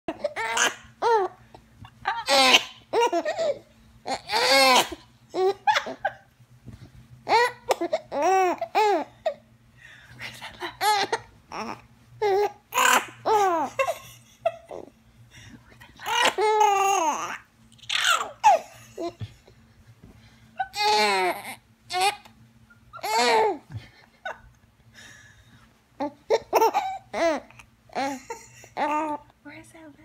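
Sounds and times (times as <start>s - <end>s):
baby laughing: 0.1s - 1.4s, 2.0s - 6.2s, 7.3s - 9.4s, 10.8s - 14.9s, 16.0s - 19.2s, 20.6s - 22.3s, 22.9s - 23.7s, 26.0s - 29.2s.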